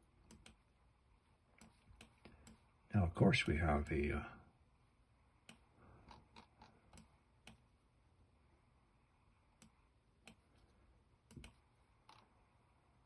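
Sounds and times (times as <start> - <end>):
faint computer mouse clicks: 0.2 - 0.6, 5.4 - 7.6, 9.6 - 10.6, 11.2 - 12.3.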